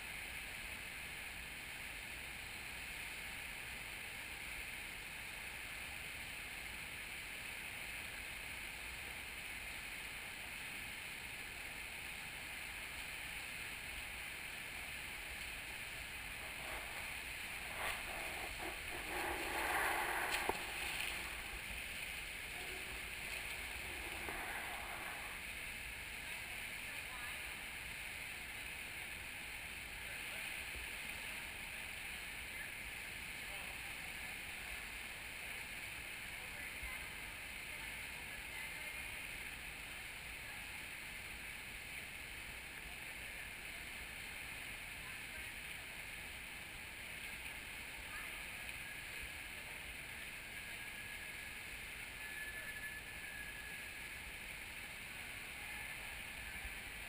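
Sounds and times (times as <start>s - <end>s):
indoor pool water wash: 0.0s - 57.0s
swimmer splashing: 15.7s - 25.6s.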